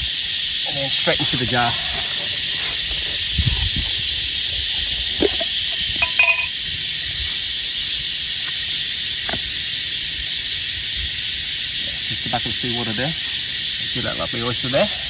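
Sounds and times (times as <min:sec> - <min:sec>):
cicadas shrilling: 0:00.0 - 0:15.0.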